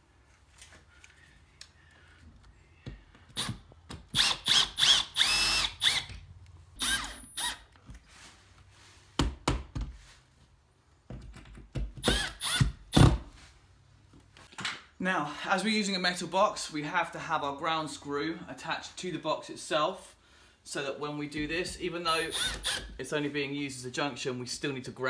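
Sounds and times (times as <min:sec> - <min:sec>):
cordless drill motor whining: 0:03.3 - 0:06.2, 0:06.8 - 0:07.8, 0:12.0 - 0:12.7, 0:22.2 - 0:23.0.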